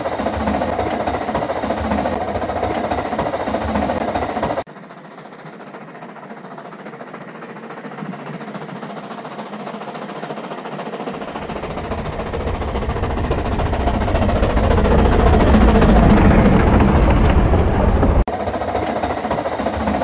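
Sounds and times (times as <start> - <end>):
steam locomotive running: 0.0 - 20.0
deep rumble: 11.2 - 18.3.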